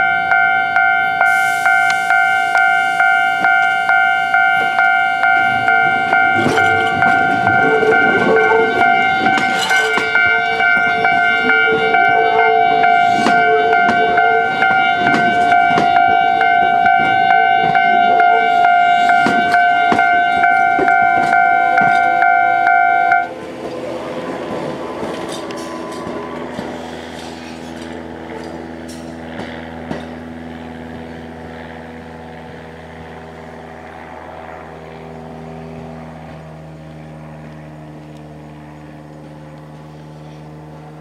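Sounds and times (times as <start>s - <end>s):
level-crossing warning bell: 0.0s - 32.9s
train wheels clicking over rail joints: 0.3s - 31.2s.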